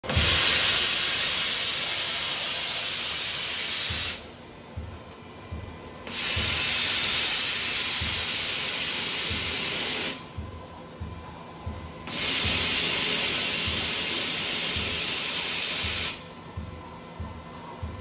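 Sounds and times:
machine hissing: 0.0 - 4.4, 6.0 - 10.5, 12.0 - 16.4
faint low thuds: 4.6 - 6.6, 10.3 - 12.1, 16.4 - 18.0.

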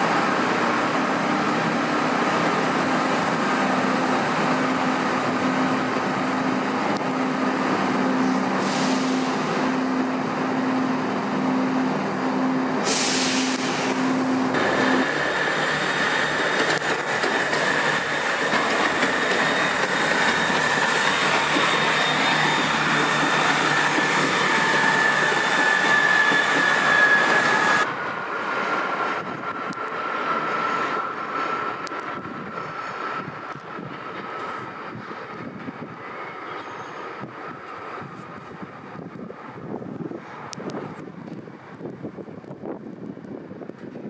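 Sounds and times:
train wheels squealing on rails: 0.0 - 40.5.

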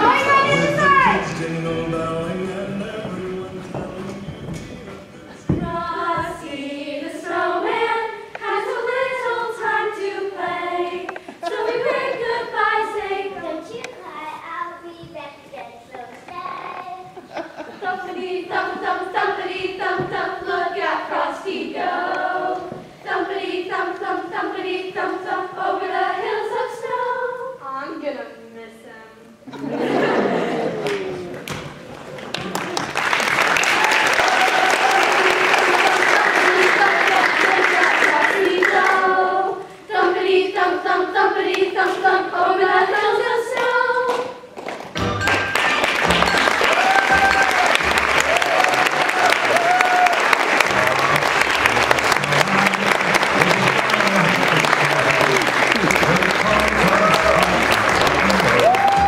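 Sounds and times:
children singing together: 0.0 - 13.7, 17.0 - 27.6, 35.2 - 44.5
audience applause: 30.0 - 38.9, 45.2 - 59.0.

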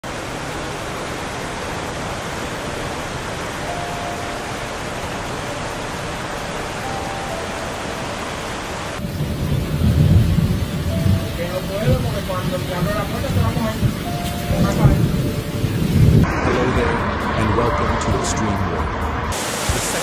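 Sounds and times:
floodwater rushing: 0.0 - 20.0
loud low rumble: 9.0 - 20.0.

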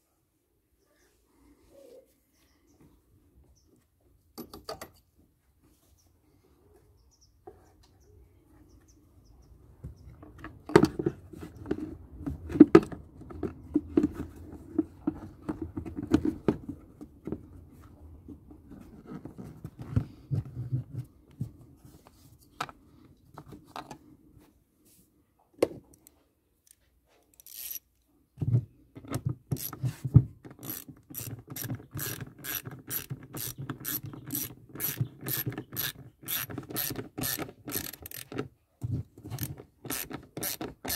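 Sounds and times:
plastic housing knocks and rattles: 10.2 - 17.4
ratchet wrench clicking: 27.3 - 27.8, 30.6 - 38.3, 39.4 - 40.9.

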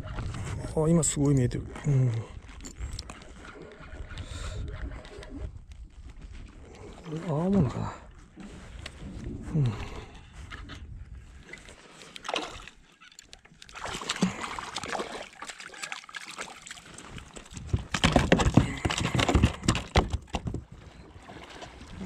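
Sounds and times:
fish flapping on kayak deck: 11.3 - 22.0
water splashing: 11.4 - 22.0.

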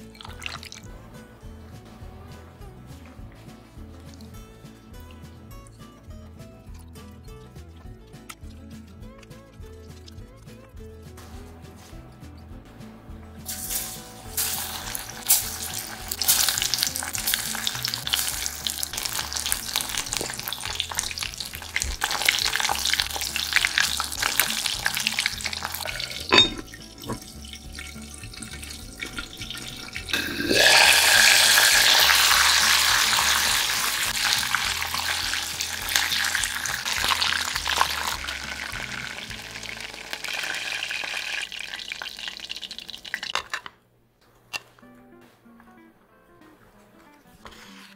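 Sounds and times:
chicken deep-frying in oil: 0.0 - 1.0, 13.5 - 43.6
cast-iron lid knock: 26.1 - 27.2.

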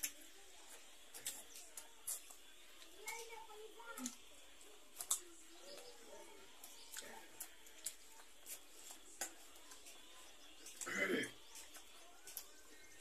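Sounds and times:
chewing clicks: 0.0 - 5.9, 6.6 - 13.0.

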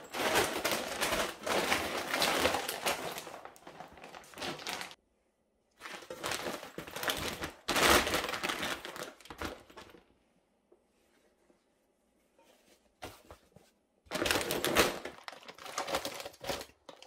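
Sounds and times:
plastic bag crinkling and rustling: 0.0 - 5.0, 5.8 - 10.1, 14.1 - 17.0.

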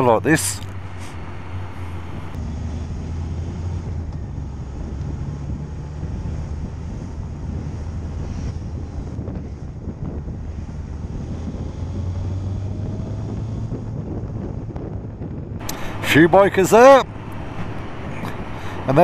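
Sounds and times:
wind noise on microphone: 0.2 - 19.0
motorcycle engine running: 0.3 - 2.4.

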